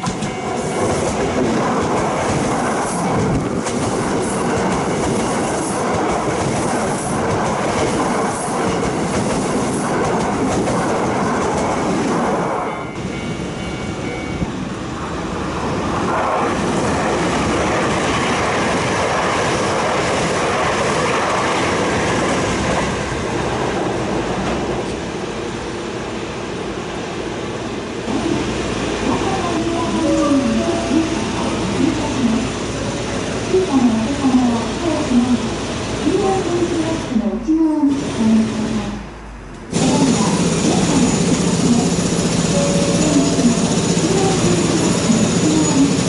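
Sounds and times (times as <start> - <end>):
train wheels rail noise: 0.0 - 25.9, 37.8 - 46.0.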